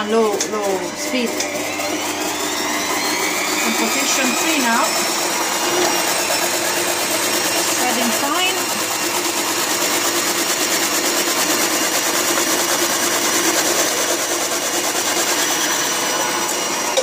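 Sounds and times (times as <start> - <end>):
food processor shredding carrot: 0.0 - 17.0.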